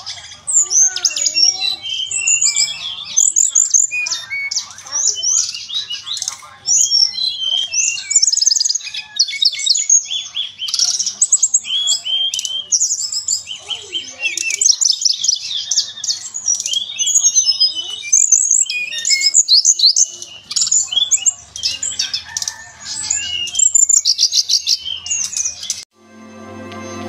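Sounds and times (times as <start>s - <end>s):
songbird singing: 0.0s - 25.9s.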